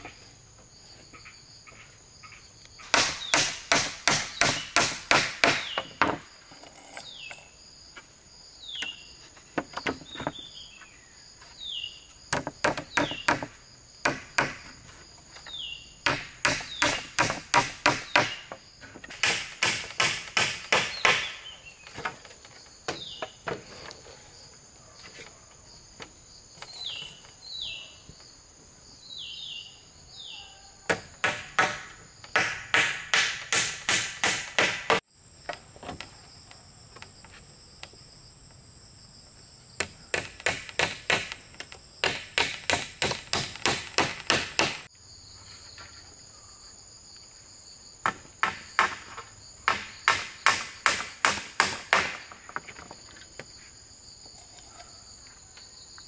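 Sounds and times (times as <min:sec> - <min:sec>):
insects buzzing: 0:00.0 - 0:56.0
hammer driving nails into bamboo: 0:02.8 - 0:07.4, 0:12.3 - 0:14.7, 0:16.0 - 0:21.4, 0:30.9 - 0:35.0, 0:39.8 - 0:41.4, 0:42.0 - 0:44.9, 0:49.7 - 0:52.4.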